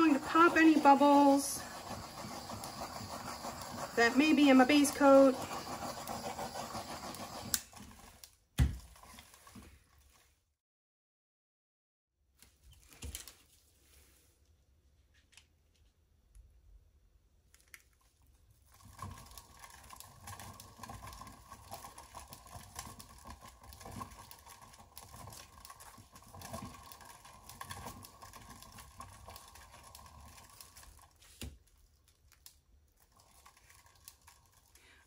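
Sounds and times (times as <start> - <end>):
spreader scraping paint on canvas: 0.0 - 8.3, 18.7 - 31.6.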